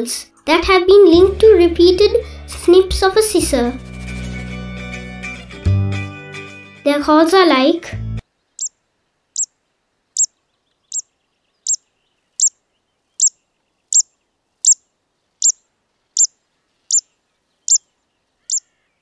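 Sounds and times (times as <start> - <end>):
bird's sharp repeated call: 8.6 - 8.8, 9.4 - 9.6, 10.2 - 12.6, 13.2 - 19.0.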